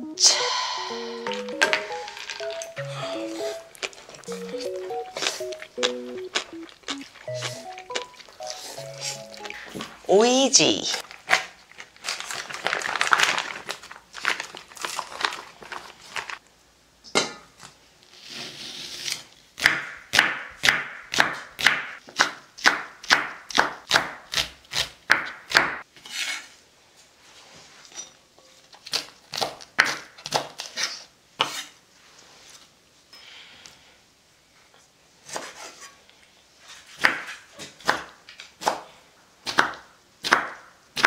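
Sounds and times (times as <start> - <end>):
plastic pouch crinkling: 1.7 - 10.1, 11.0 - 16.4.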